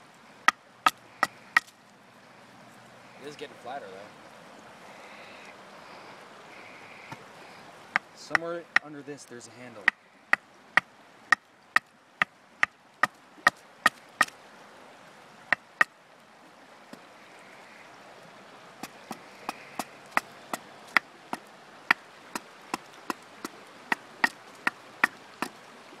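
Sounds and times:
axe chopping wood: 0.5s - 1.7s, 12.6s - 14.3s, 20.9s - 25.6s.

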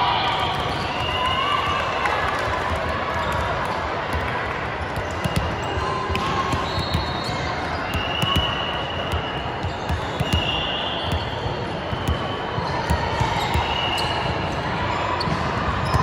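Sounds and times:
chatter of people echoing: 0.0s - 16.0s
sneaker squeaks: 5.0s - 16.0s.

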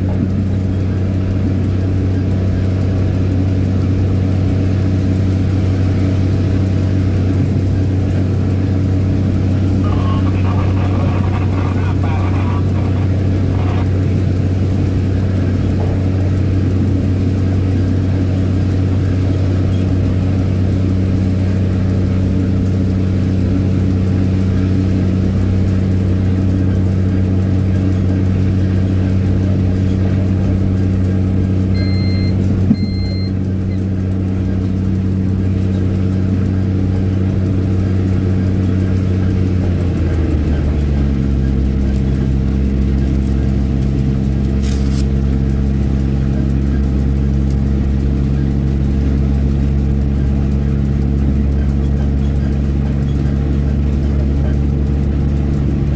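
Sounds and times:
diesel train engine drone: 0.0s - 55.9s
short high beeps: 31.8s - 33.4s.

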